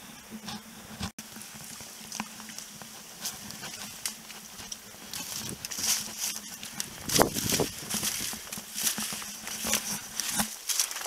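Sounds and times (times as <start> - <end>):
footsteps through dry grass: 1.2 - 11.0.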